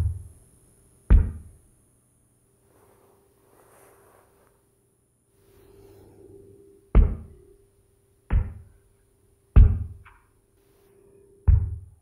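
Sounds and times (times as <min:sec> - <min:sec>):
faint steady hum: 0:00.0 - 0:12.0
deep heavy thuds: 0:06.9 - 0:07.4, 0:08.3 - 0:08.7.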